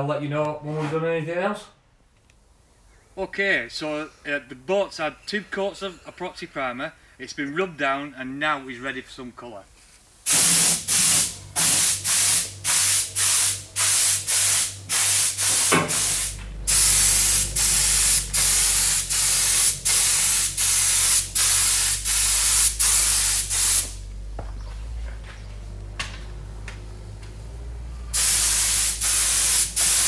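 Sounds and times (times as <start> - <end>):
paint spray gun hissing bursts: 10.2 - 24.1, 28.1 - 30.0
low steady hum: 14.6 - 28.2.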